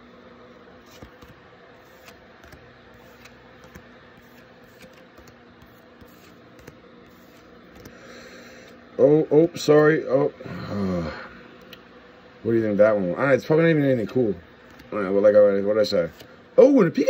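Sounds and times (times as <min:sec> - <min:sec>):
low steady hum: 0:00.0 - 0:17.0
trading cards rustling: 0:00.8 - 0:08.2.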